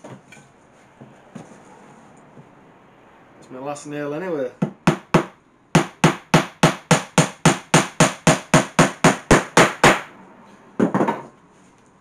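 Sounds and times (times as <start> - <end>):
hammer driving nail into wood: 4.6 - 10.1.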